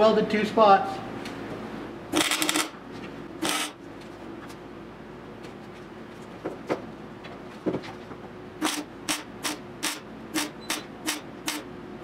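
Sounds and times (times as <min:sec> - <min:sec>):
welding arc crackling: 0:02.2 - 0:02.8, 0:08.6 - 0:11.7.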